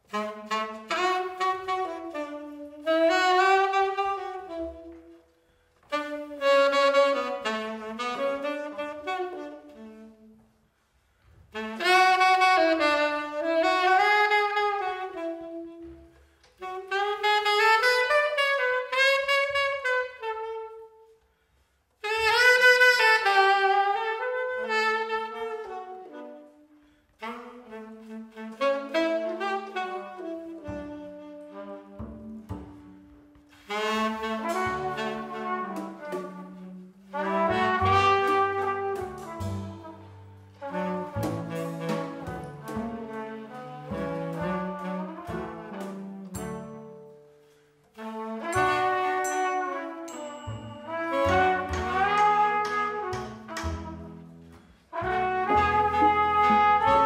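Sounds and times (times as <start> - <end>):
trumpet playing: 0.0 - 5.1, 22.0 - 47.1, 48.0 - 57.0
tenor saxophone melody: 0.0 - 10.6, 11.5 - 21.4, 22.0 - 57.0.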